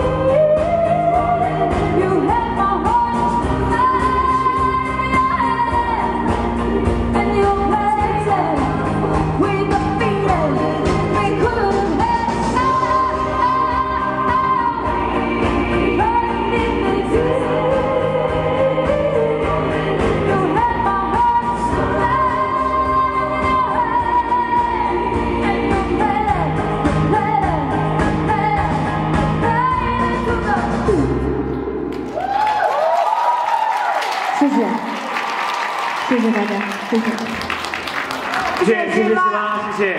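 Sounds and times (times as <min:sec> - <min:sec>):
woman singing into a microphone: 0:00.0 - 0:31.2
backing music with steady beat: 0:00.0 - 0:32.0.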